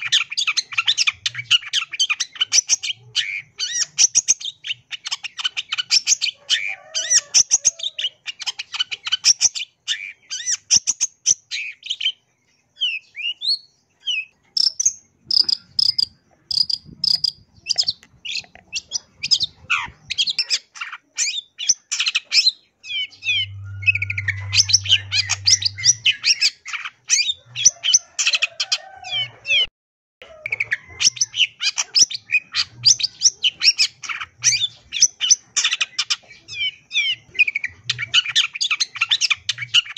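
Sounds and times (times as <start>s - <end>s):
bird chattering song: 0.0s - 29.7s, 30.3s - 39.9s
low hum: 23.2s - 26.3s.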